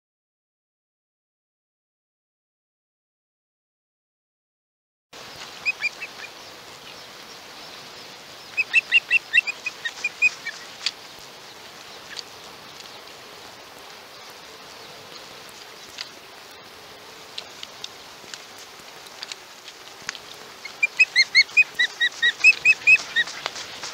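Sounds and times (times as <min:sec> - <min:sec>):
steady background hiss: 0:05.2 - 0:23.9
osprey chirping: 0:05.4 - 0:07.8, 0:08.4 - 0:13.1, 0:20.6 - 0:23.9.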